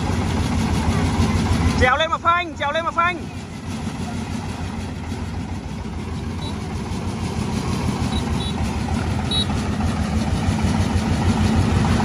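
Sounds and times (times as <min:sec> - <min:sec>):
diesel engine rapid low thudding: 0:00.0 - 0:12.0.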